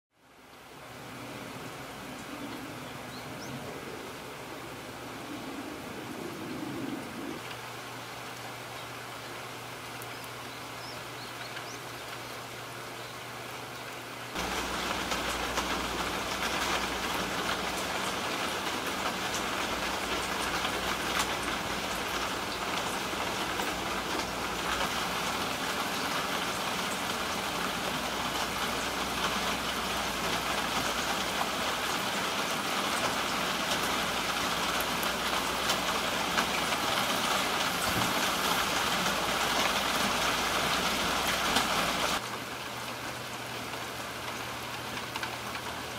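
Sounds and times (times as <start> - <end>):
rain on wet pavement: 13.6 - 45.9.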